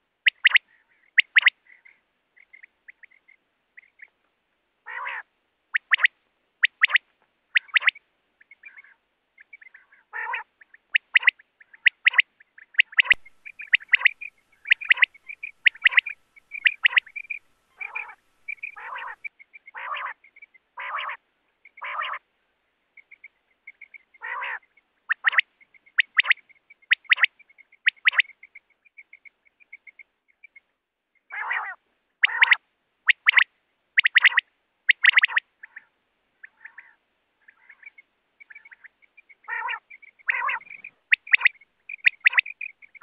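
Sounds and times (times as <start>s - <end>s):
quail calling: 0.2s - 4.1s, 4.9s - 22.2s, 23.0s - 30.0s, 31.3s - 43.0s.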